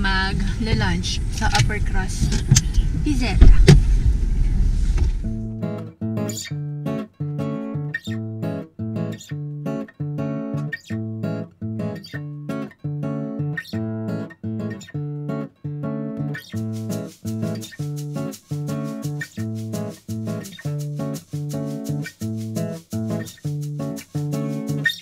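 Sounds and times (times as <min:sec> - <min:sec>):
background music with plucked chords: 0:05.3 - 0:25.0.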